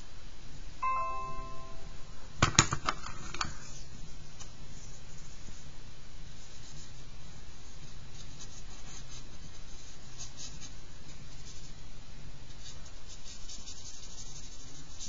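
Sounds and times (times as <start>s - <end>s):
charcoal scratching on paper: 6.3s - 15.0s.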